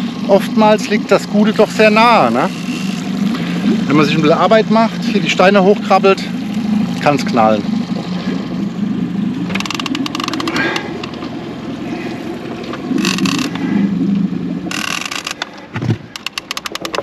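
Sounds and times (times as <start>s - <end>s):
boat motor hum: 0.0s - 17.0s
fishing reel clicking: 2.2s - 3.2s, 9.5s - 11.2s, 13.0s - 13.6s, 14.7s - 15.5s, 16.1s - 17.0s.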